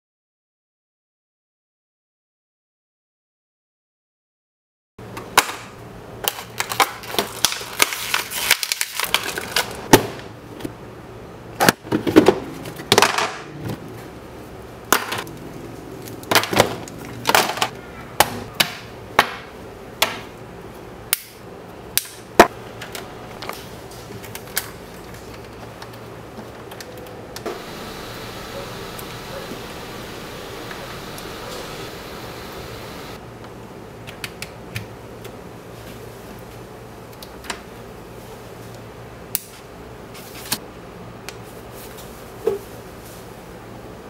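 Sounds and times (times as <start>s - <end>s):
faint low hum: 26.8s - 33.2s.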